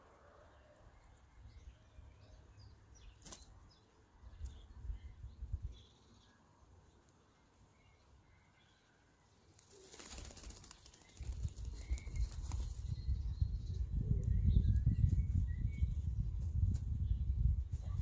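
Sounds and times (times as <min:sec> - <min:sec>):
rustling feathers and nest material: 0:09.7 - 0:12.9.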